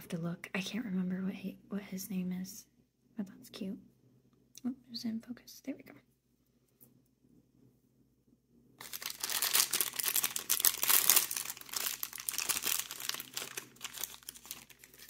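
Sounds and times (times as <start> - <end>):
packaging wrapper crinkling and tearing: 8.8 - 15.0.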